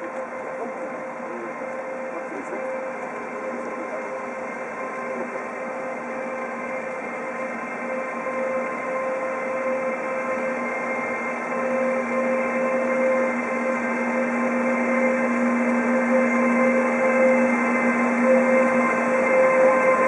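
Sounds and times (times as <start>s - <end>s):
electric locomotive whine: 0.0s - 20.0s
train rolling rumble: 0.0s - 20.0s.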